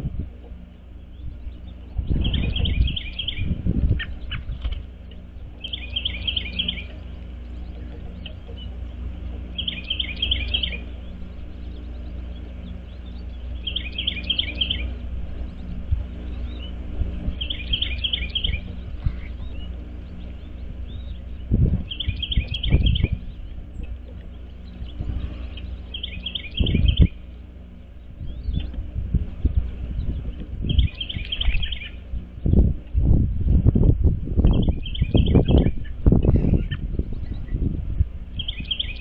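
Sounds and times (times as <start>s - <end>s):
steady low rumble: 0.0s - 39.0s
songbird whistling: 1.0s - 4.4s, 5.6s - 7.0s, 9.5s - 23.5s, 24.6s - 27.2s, 30.0s - 32.6s, 34.4s - 37.6s, 38.3s - 39.0s.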